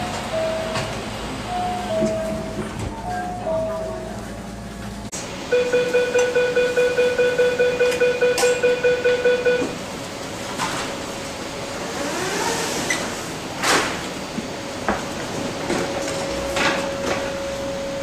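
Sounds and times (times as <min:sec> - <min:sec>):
rapid electronic beeping: 0:05.5 - 0:09.7
train doors sliding shut: 0:09.6 - 0:18.0.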